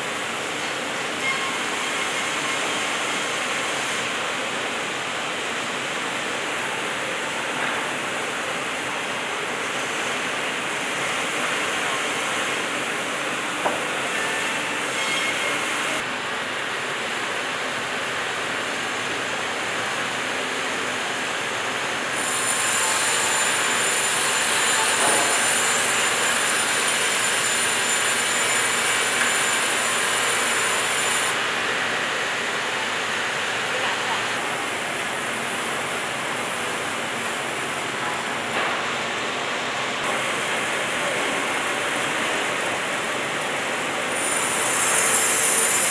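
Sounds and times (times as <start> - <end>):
sawmill machinery: 0.0 - 45.9
saw blade whining through wood: 22.2 - 31.4, 44.1 - 45.9
band resaw running: 44.1 - 45.9.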